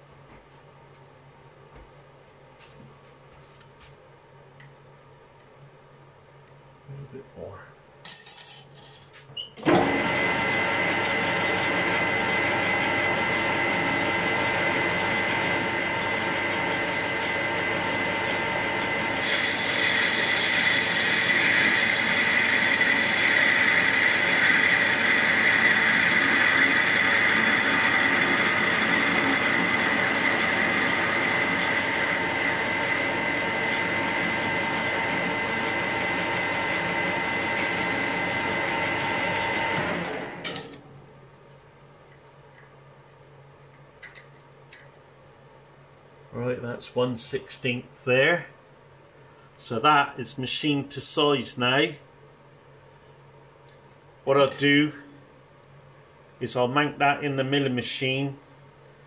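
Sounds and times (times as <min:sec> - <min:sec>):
metal lathe whining: 0:09.6 - 0:40.4.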